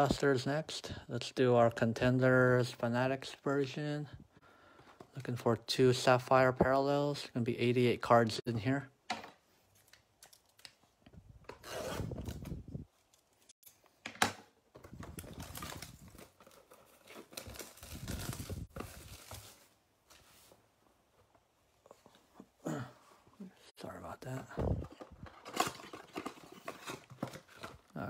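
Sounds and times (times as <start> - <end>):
wrapper and cardboard tearing: 14.9 - 19.8, 25.3 - 28.0.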